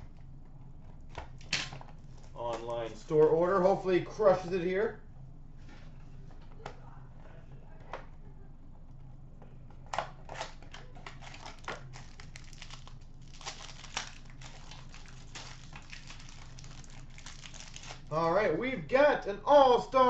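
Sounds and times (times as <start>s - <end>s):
foil wrapper crinkling and tearing: 10.3s - 18.2s.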